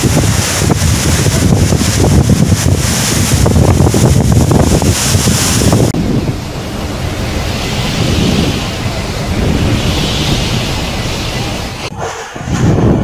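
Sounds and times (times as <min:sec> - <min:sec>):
driving rain: 0:00.0 - 0:13.0
strong wind gusts: 0:00.0 - 0:13.0
wind buffeting microphone: 0:00.0 - 0:13.0.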